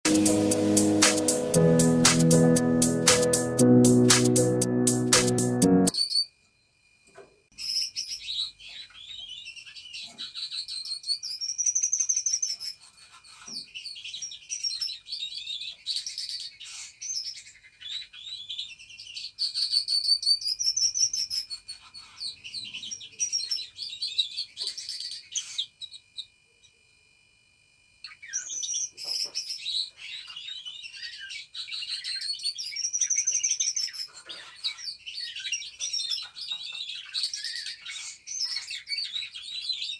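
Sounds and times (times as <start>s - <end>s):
budgerigars chattering and warbling: 7.6s - 26.0s, 28.1s - 39.9s.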